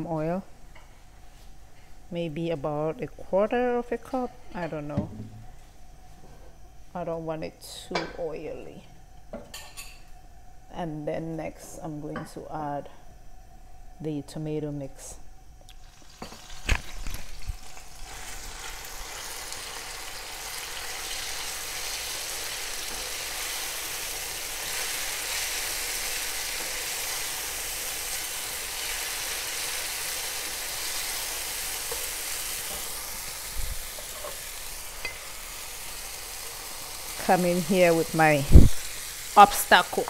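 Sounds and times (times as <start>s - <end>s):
sauce sizzling in hot oil: 15.7s - 40.0s.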